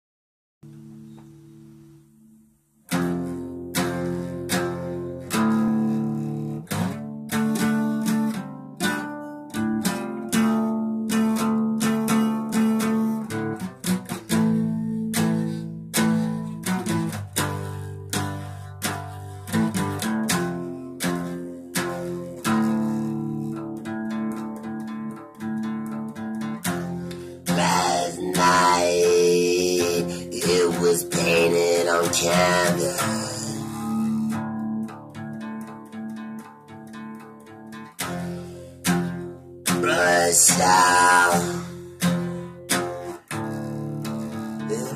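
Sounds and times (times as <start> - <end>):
acoustic guitar strumming chords: 0.6 - 44.9
man singing: 27.4 - 34.3, 39.7 - 41.9, 44.6 - 44.9.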